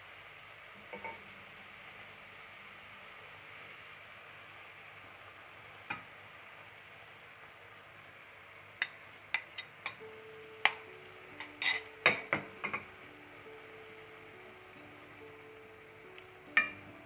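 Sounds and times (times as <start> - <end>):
glass bowl clinking: 8.8 - 13.1, 16.4 - 16.9.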